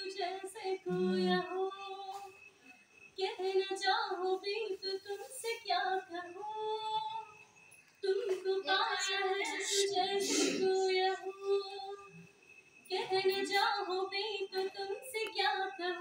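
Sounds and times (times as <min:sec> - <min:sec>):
woman singing solo: 0:00.7 - 0:02.3, 0:08.0 - 0:12.1.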